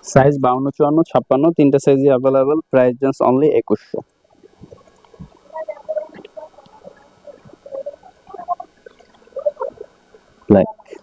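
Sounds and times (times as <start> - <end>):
fabric rustling: 4.3 - 10.5.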